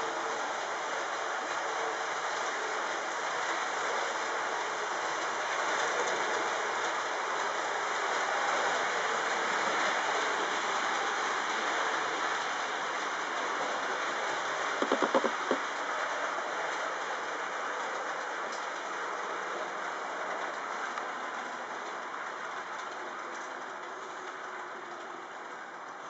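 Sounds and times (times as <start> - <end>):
wheels rolling over rails: 14.8 - 15.8.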